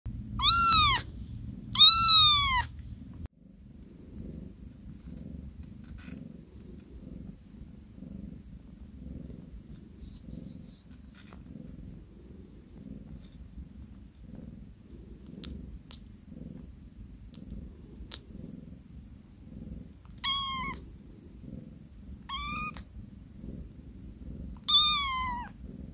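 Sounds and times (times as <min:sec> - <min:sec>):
kitten purring: 0:00.1 - 0:25.9
kitten meowing: 0:00.4 - 0:01.1, 0:01.8 - 0:02.7, 0:20.2 - 0:20.8, 0:22.3 - 0:22.8, 0:24.6 - 0:25.6.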